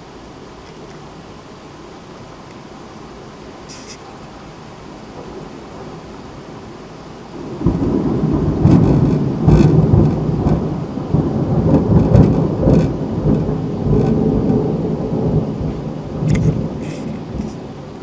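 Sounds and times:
torrential rain hissing: 0.0 - 18.0
rolling thunder: 7.3 - 18.0
raindrops tapping: 8.5 - 10.7, 11.6 - 14.7, 16.2 - 17.6.

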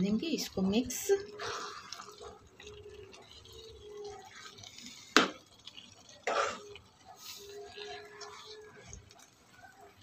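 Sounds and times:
spoon stirring wet rice: 0.0 - 10.0.

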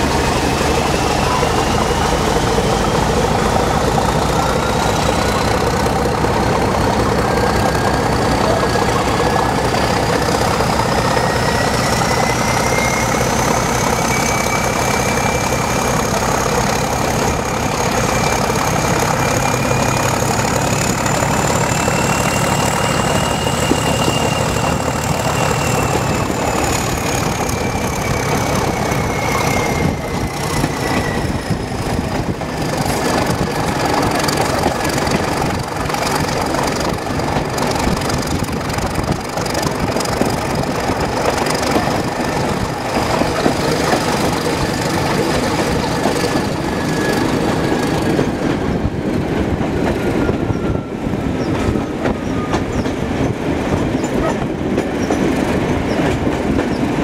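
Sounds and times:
diesel locomotive engine: 0.0 - 57.0
wheels clicking over rail joints: 31.9 - 47.4, 51.4 - 57.0.

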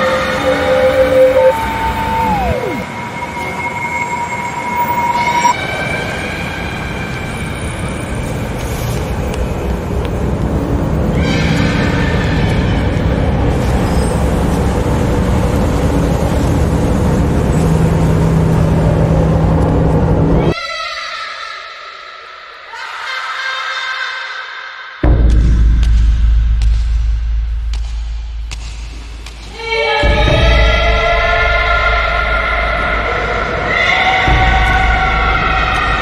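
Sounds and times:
falling pitch sweep: 0.0 - 5.7
dark noisy drone: 0.0 - 20.6, 25.0 - 36.0.

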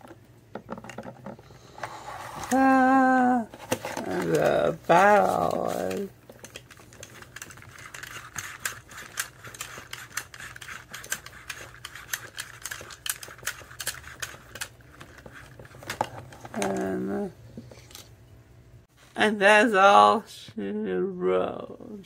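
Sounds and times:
person's voice: 2.5 - 6.1, 16.5 - 17.4, 19.1 - 22.0
plastic toy parts clicking: 3.6 - 16.9.

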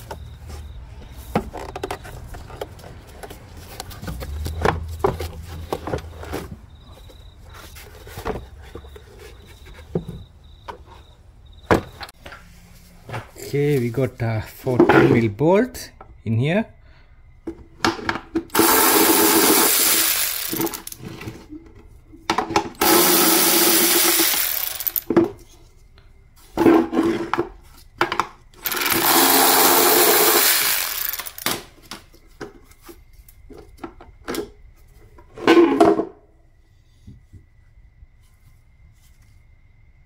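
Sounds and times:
plastic parts clicking and knocking: 1.3 - 6.6
electric ratchet whirring: 18.5 - 21.0, 22.8 - 25.1, 28.6 - 31.6.

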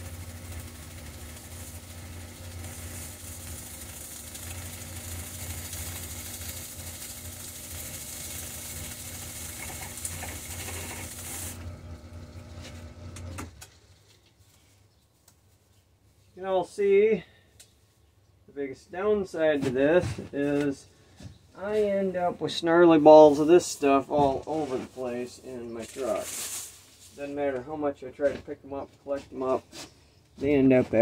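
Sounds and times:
lathe motor hum: 0.0 - 13.6
tool cutting plastic pipe: 9.4 - 11.6.

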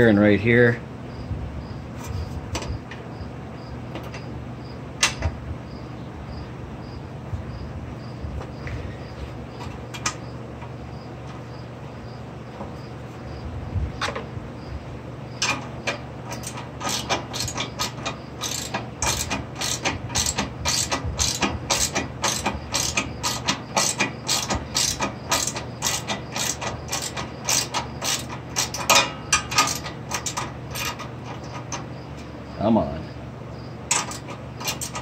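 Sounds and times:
ratchet wrench clicking: 16.3 - 31.8, 33.9 - 35.0.

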